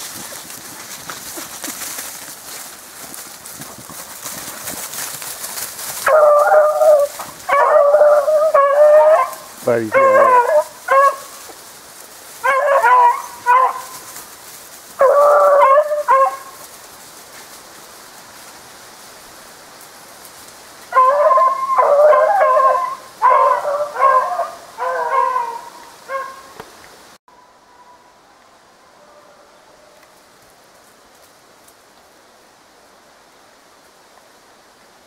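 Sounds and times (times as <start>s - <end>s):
dog baying: 6.0s - 11.3s, 12.4s - 14.0s, 15.0s - 16.5s, 21.0s - 26.4s.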